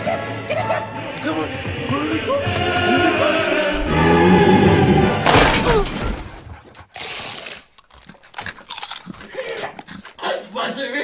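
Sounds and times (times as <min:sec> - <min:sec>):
music with singing: 0:00.0 - 0:05.2
glass door shattering: 0:05.2 - 0:06.6.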